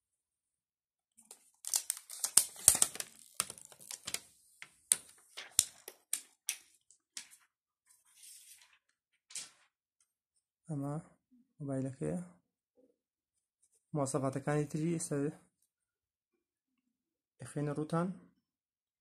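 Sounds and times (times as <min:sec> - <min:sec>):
plastic film peeling and crinkling: 0:01.2 - 0:07.4.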